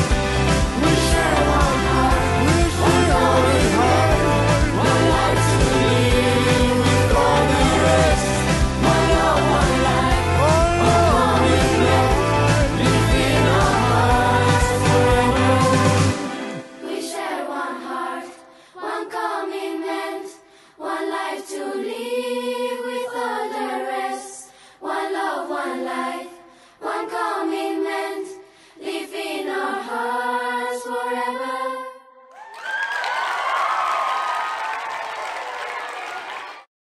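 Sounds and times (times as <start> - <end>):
choir singing unaccompanied: 0.0 - 32.1
applause: 32.3 - 36.7.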